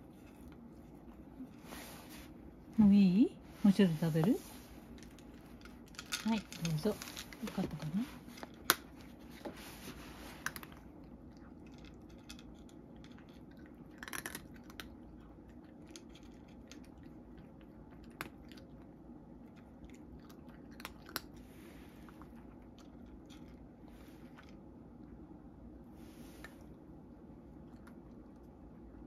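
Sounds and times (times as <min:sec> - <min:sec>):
cat crunching dry food: 0:04.8 - 0:25.0.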